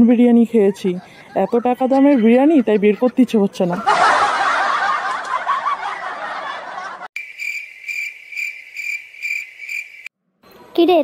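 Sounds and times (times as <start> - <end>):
canned audience laughter: 0.7 - 7.1
cricket chirping: 7.2 - 10.1.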